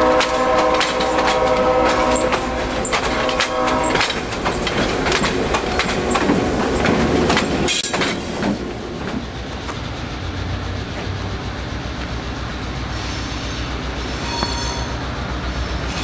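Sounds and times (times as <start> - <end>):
diesel locomotive horn: 0.0 - 4.2
wheels clicking over rail joints: 0.0 - 12.7
low train rumble: 0.0 - 16.0.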